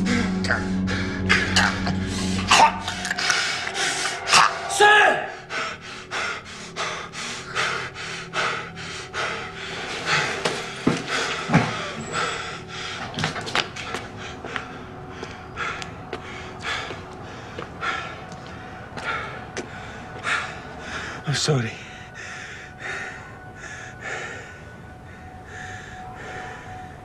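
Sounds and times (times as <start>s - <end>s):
person panting: 5.3s - 13.2s.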